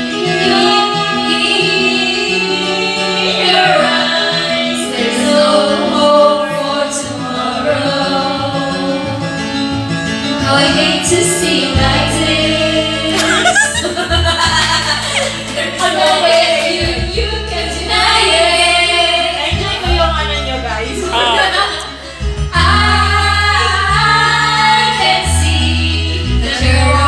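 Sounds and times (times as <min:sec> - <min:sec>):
recorded backing track: 0:00.0 - 0:27.0
women singing karaoke: 0:00.0 - 0:27.0.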